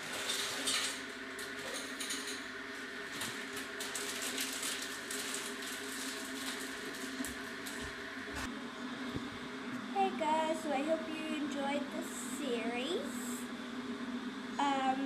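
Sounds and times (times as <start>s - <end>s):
steady hum with held tones: 0.0s - 15.0s.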